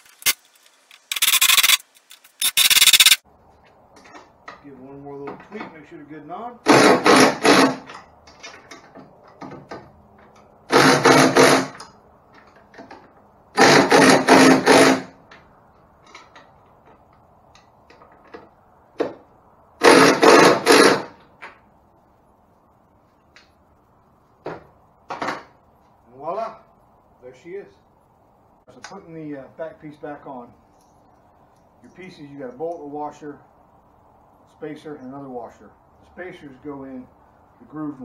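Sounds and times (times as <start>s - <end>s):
cordless drill bursts: 1.1s - 1.8s, 2.4s - 3.2s, 6.7s - 7.8s, 10.7s - 11.8s, 13.6s - 15.1s, 19.8s - 21.1s.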